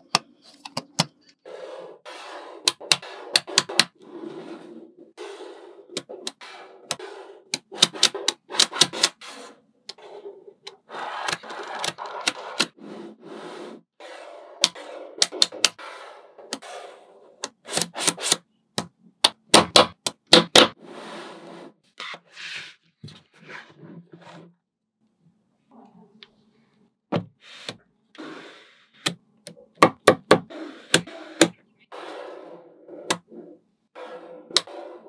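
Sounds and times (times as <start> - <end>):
ball strips scraping on a tabletop: 1.4 - 18.4, 20.7 - 24.5, 30.5 - 35.0.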